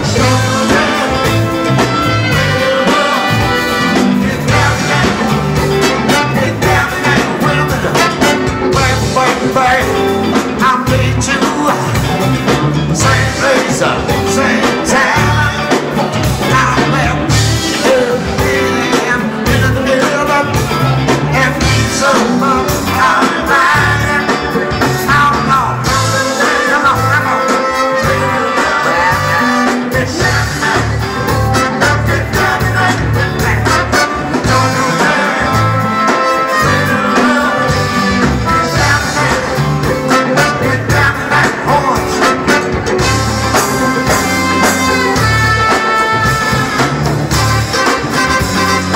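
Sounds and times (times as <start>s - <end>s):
funk band playing: 0.0s - 48.9s
horn section: 0.0s - 48.9s
lead vocal singing: 0.0s - 48.9s
repeated bass line: 0.0s - 48.9s.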